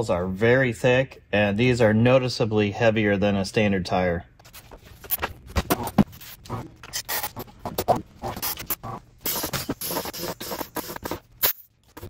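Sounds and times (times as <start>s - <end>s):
rubber tyre bead squeaking and scraping: 5.7s - 11.3s.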